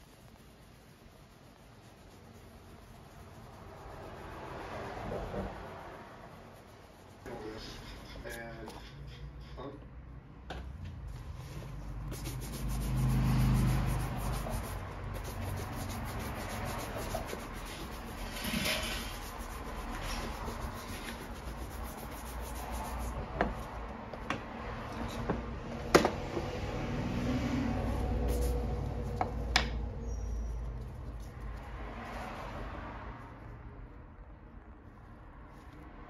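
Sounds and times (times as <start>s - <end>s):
shoe brush scrubbing leather boot: 0.0s - 7.9s, 12.0s - 23.8s.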